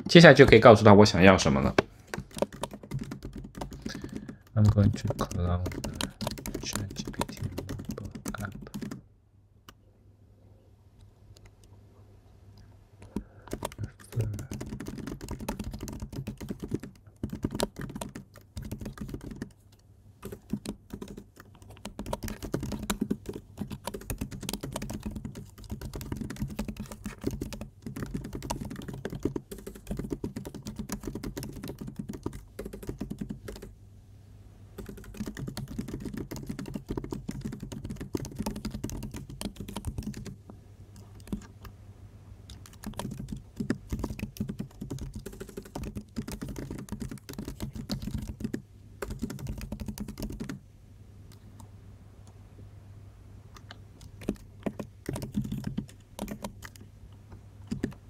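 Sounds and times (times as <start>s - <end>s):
computer keyboard typing: 2.1s - 9.0s, 13.0s - 19.6s, 20.2s - 33.7s, 34.8s - 40.4s, 41.0s - 41.7s, 42.5s - 50.6s, 53.6s - 56.8s, 57.6s - 58.0s.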